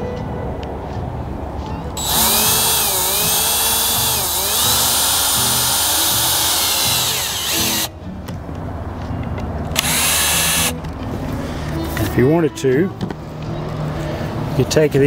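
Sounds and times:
cordless drill driving screw into wood: 0:02.0 - 0:07.9, 0:09.8 - 0:10.8.

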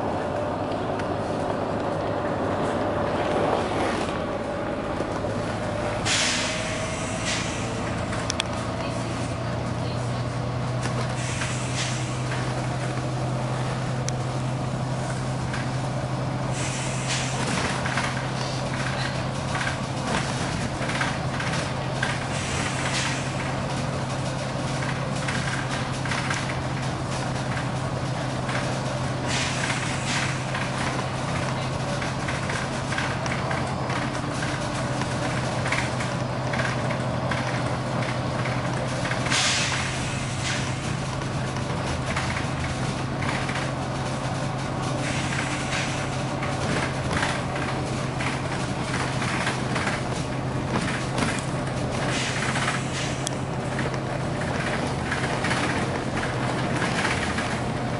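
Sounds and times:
bus body rattles: 0:00.0 - 0:57.9
diesel bus engine drone: 0:00.0 - 0:57.9
road noise: 0:00.0 - 0:57.9
air brake hisses: 0:06.0 - 0:07.9, 0:11.1 - 0:12.3, 0:16.5 - 0:17.6, 0:22.3 - 0:23.5, 0:29.3 - 0:30.5, 0:39.3 - 0:41.0, 0:45.0 - 0:46.1, 0:52.1 - 0:53.2.

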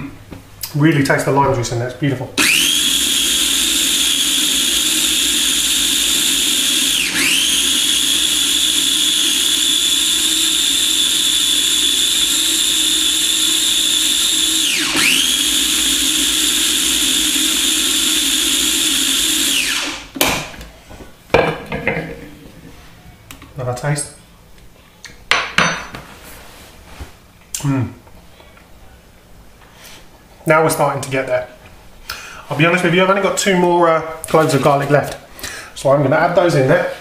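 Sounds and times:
food processor motor whining: 0:02.4 - 0:20.1.

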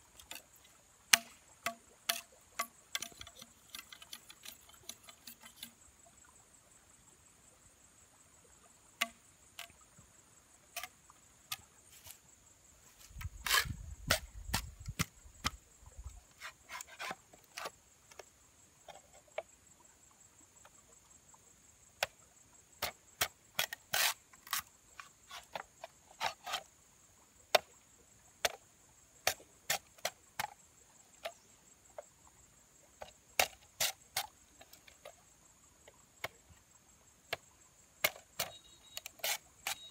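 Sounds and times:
blade cutting into wood: 0:13.2 - 0:15.6, 0:16.4 - 0:17.7, 0:23.6 - 0:24.7, 0:38.0 - 0:39.9.

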